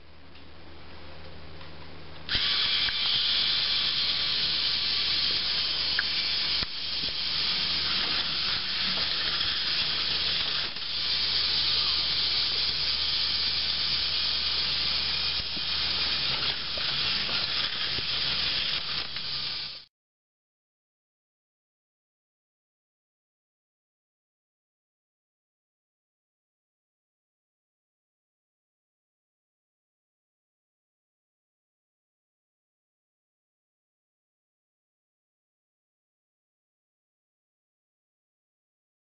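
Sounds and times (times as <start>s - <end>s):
toy roller coaster rattling whir: 2.3s - 19.9s.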